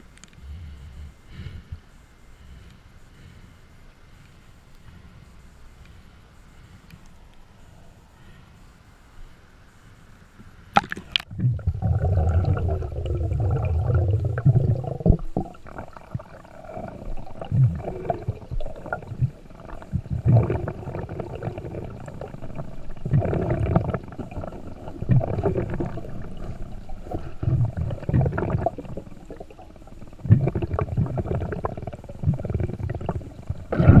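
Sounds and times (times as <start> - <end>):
underwater bubbling and gurgles: 10.8 - 34.0.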